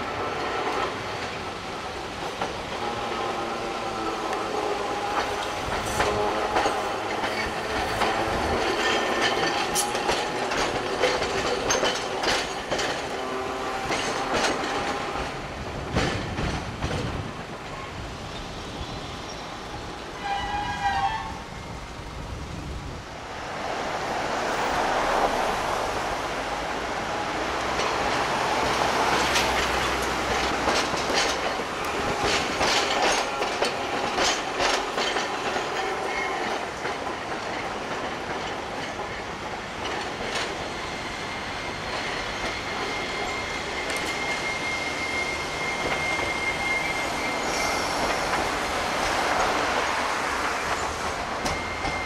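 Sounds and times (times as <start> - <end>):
streetcar wheel squeal: 2.8 - 15.3, 17.0 - 21.7, 27.7 - 37.6, 38.5 - 52.0
wheels clicking over rail joints: 4.2 - 17.8, 27.6 - 40.7
horn-like tone: 20.2 - 21.4.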